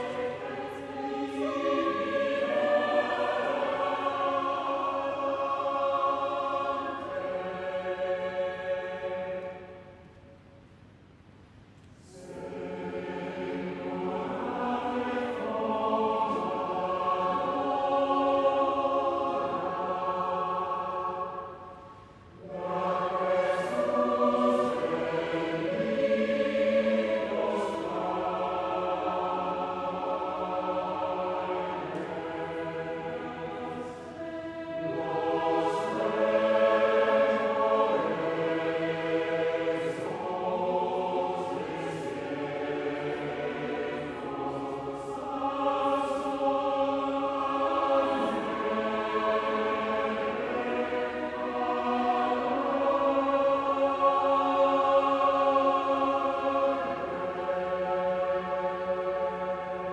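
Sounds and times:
mixed choir singing: 0.0 - 10.2, 12.0 - 59.9.

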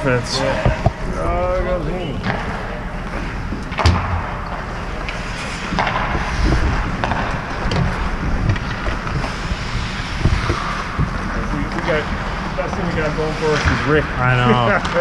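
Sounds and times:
hockey sticks and puck clacking: 3.7 - 13.8.

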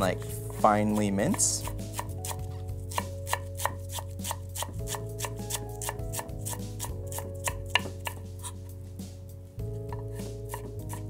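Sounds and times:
knife chopping on wooden board: 0.8 - 8.6, 9.9 - 11.0.

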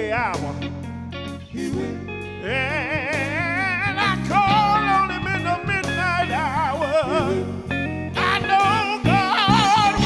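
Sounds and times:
electric band playing: 0.0 - 10.0
gospel singer with vibrato: 0.0 - 10.0.

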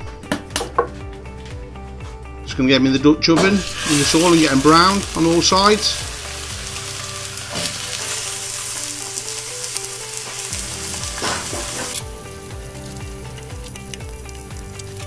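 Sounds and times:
meat sizzling in hot oil: 3.6 - 15.0.

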